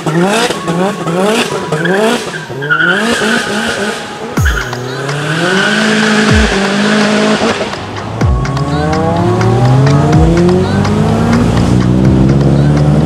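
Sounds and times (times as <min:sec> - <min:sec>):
car engines revving: 0:00.0 - 0:13.0
music with deep bass hits: 0:04.4 - 0:13.0.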